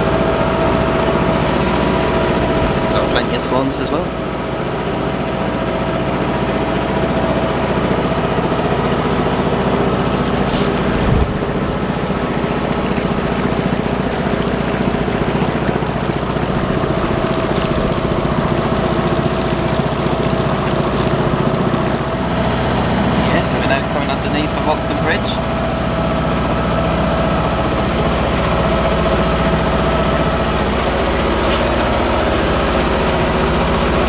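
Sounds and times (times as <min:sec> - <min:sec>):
boat motor humming: 0:00.0 - 0:34.0.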